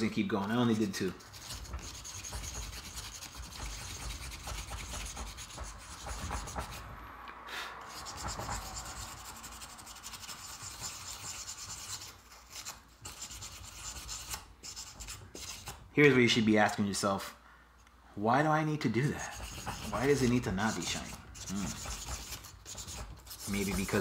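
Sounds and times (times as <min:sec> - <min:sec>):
abrasive scratching metal parts: 0:19.0 - 0:24.0.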